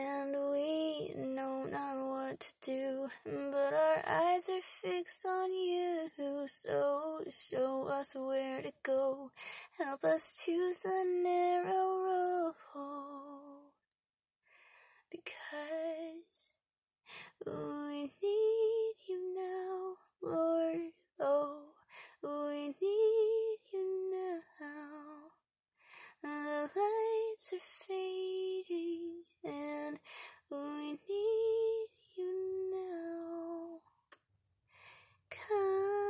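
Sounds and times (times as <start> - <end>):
woman singing wordless melody: 0.0 - 13.8, 15.1 - 16.5, 17.2 - 25.4, 26.2 - 33.9, 35.3 - 36.0
singer breaths: 34.7 - 35.2.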